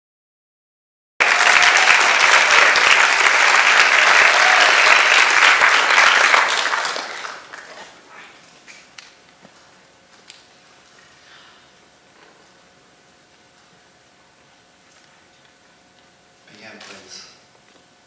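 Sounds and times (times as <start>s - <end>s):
audience applauding: 1.2s - 7.9s.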